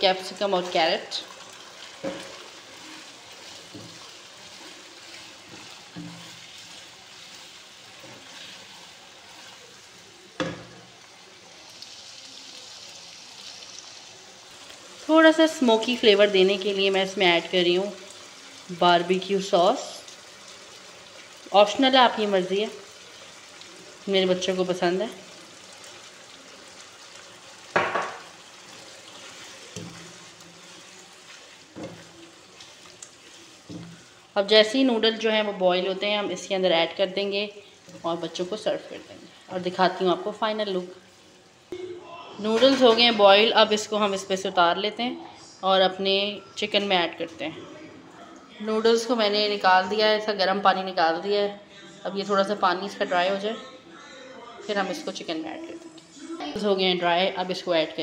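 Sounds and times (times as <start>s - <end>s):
food sizzling in a wok: 0.0s - 41.8s
wooden spatula stirring: 0.3s - 11.1s, 28.2s - 34.4s
spatula scraping pan: 1.8s - 9.6s
spatula knocking pan: 27.7s - 28.4s.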